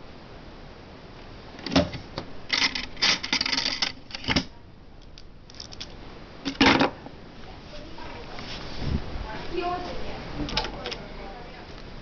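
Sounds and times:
plastic model train cars clattering: 2.5s - 4.5s.

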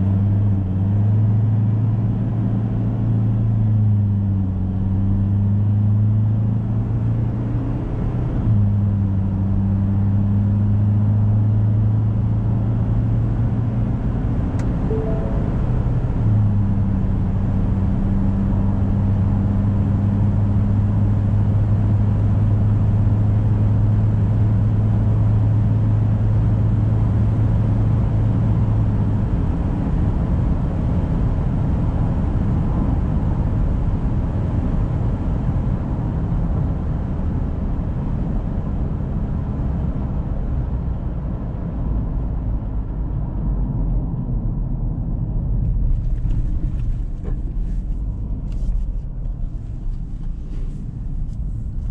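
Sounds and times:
engine drone: 14.4s - 18.4s
tyre and road rumble: 43.7s - 51.9s.

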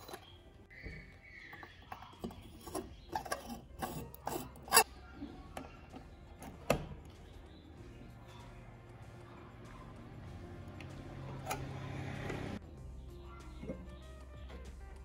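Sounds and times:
light bulb scraping in socket: 0.0s - 0.3s, 1.9s - 4.9s.

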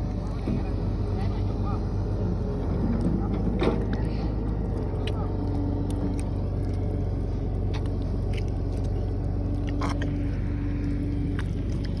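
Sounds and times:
low motor drone: 0.0s - 12.0s
hand digging in wet mud: 4.1s - 12.0s.

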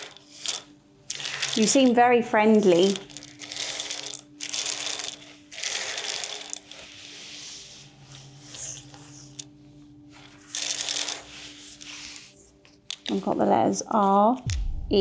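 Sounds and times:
steady low hum: 14.5s - 15.0s.

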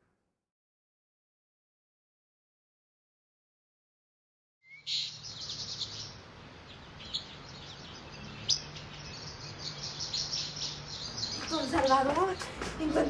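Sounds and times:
small birds chirping: 4.6s - 13.0s.

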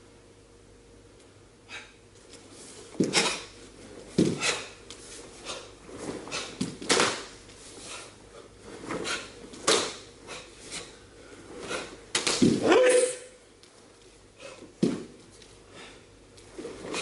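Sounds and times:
bare feet slapping wooden floor: 4.1s - 5.0s, 12.1s - 12.6s, 14.8s - 15.2s.

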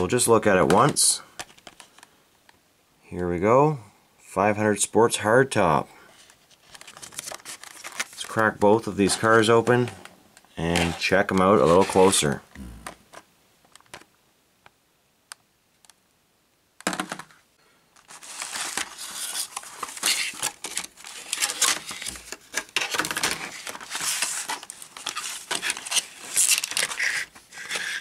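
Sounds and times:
packaging crinkling and tearing: 6.5s - 8.4s, 18.0s - 28.0s.

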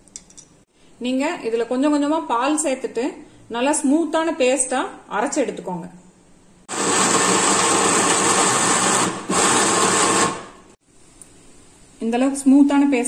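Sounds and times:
mixer grinder running: 6.7s - 10.7s.

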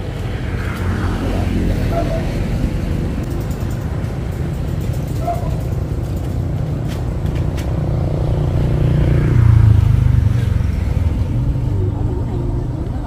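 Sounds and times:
low engine-like rumble: 9.3s - 13.0s.

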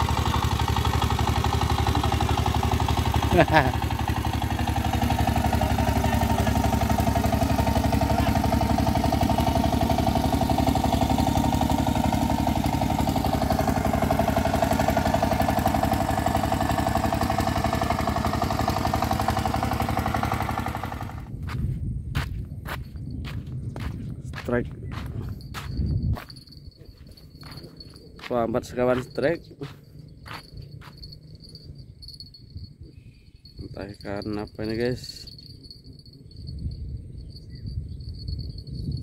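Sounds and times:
boat engine chugging: 0.0s - 21.3s, 24.3s - 39.0s.

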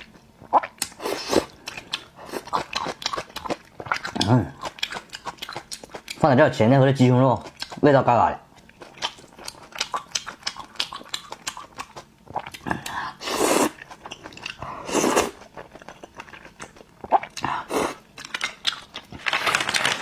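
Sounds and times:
chewing and biting noodles: 0.0s - 6.2s, 7.4s - 7.8s, 8.6s - 19.4s.

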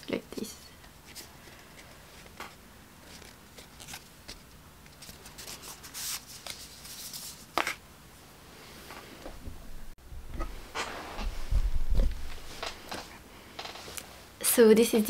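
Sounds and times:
paper rustling and sliding: 1.1s - 7.8s.

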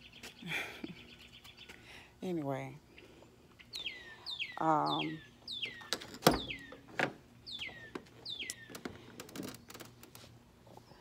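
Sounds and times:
bird calling: 2.9s - 9.0s.

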